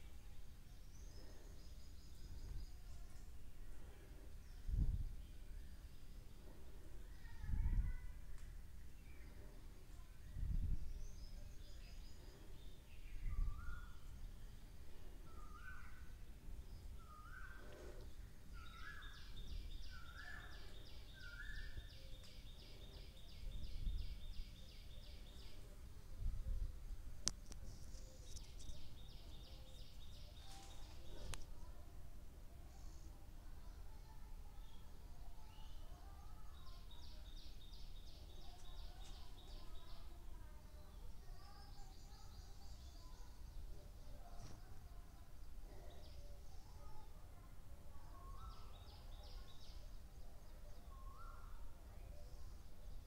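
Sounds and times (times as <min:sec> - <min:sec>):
bird chirping: 0:10.2 - 0:25.7, 0:27.2 - 0:31.4.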